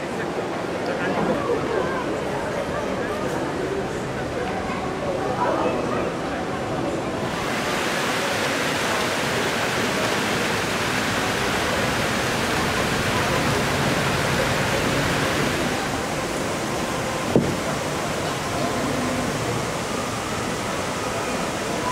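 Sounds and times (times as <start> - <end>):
faint voices: 0.0 - 21.9
steady rushing noise: 7.1 - 21.9.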